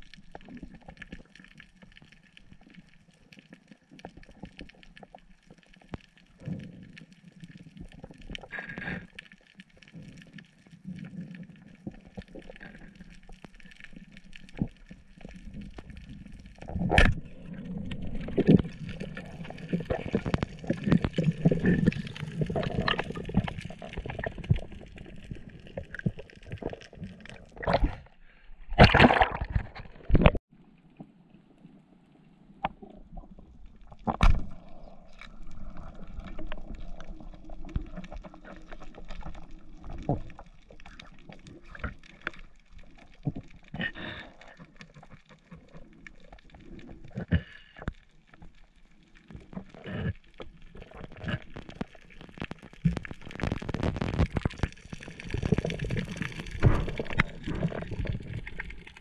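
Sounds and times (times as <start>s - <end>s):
muffled underwater gurgling: 9.9s - 28.1s, 49.3s - 59.0s.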